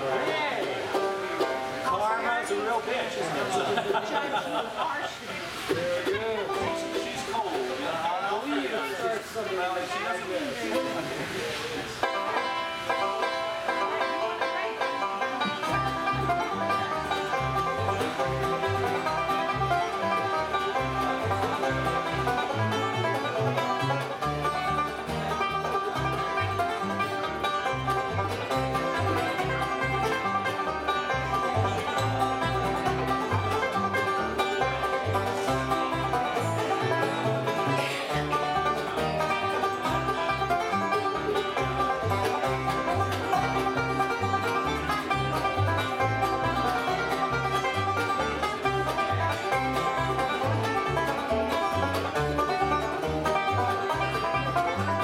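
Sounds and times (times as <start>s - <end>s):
guitar picking: 0.0s - 3.4s, 5.4s - 9.3s, 10.6s - 55.0s
banjo picking: 0.0s - 55.0s
bass notes: 12.1s - 55.0s.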